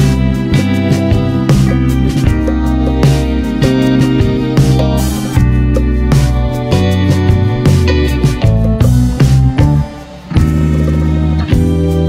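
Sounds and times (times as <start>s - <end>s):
guitar-led music with beat: 0.0s - 12.0s.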